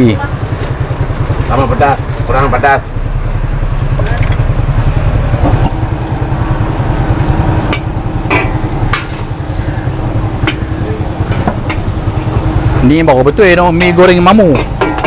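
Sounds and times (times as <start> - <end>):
gas burner rumble: 0.0 - 15.0
noodles frying in a wok: 4.7 - 15.0
metal clanks on wok: 7.7 - 9.3, 10.4 - 11.9, 13.8 - 15.0
metal spatula scraping wok: 13.8 - 15.0.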